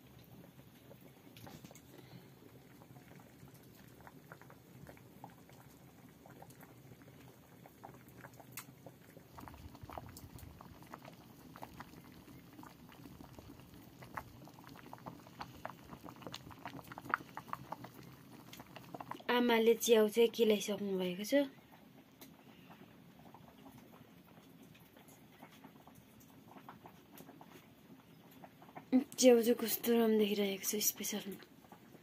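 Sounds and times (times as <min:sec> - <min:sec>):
rice bubbling in a pot: 0:00.0 - 0:32.0.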